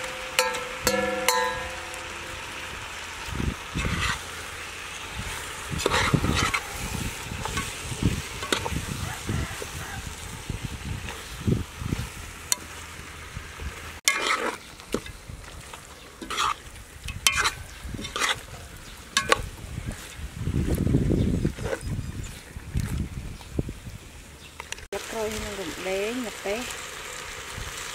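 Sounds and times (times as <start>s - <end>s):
metal spoon scraping a pot: 3.8s - 4.2s, 5.7s - 8.8s, 14.1s - 15.2s, 16.2s - 18.5s.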